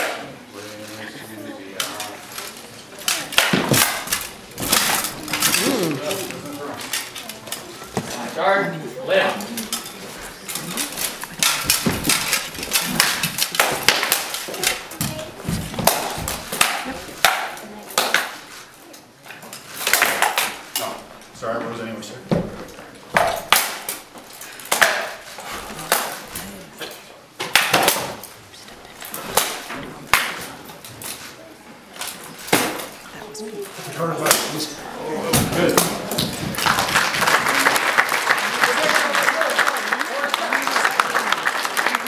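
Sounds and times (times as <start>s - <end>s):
rattan swords knocking and clacking: 1.8s - 8.1s, 9.4s - 21.0s, 22.3s - 31.2s.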